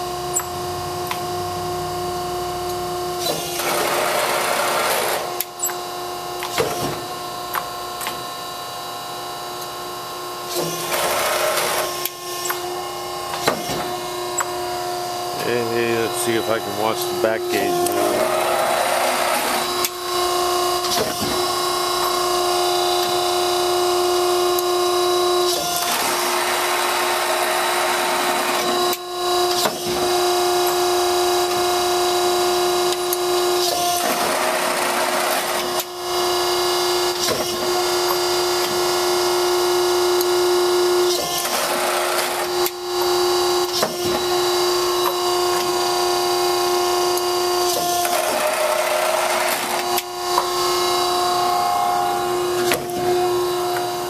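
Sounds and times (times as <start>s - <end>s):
machine cycling rush of noise: 0.0s - 6.4s, 7.1s - 29.5s, 41.6s - 54.0s
press motor and pump humming: 0.0s - 54.0s.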